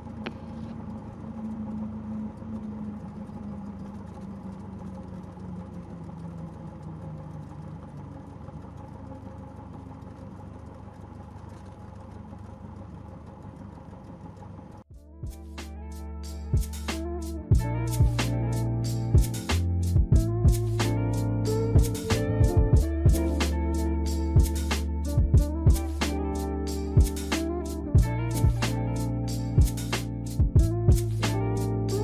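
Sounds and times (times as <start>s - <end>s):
plane engine idling: 0.0s - 15.2s, 16.2s - 32.0s
music: 14.9s - 32.0s.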